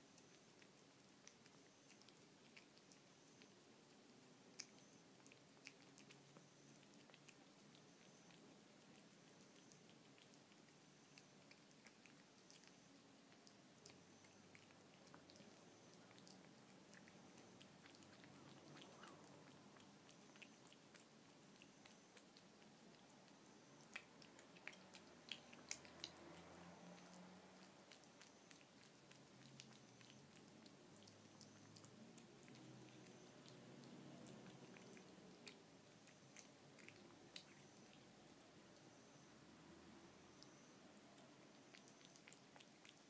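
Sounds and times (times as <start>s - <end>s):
cat lapping and chewing wet food: 0.0s - 43.0s.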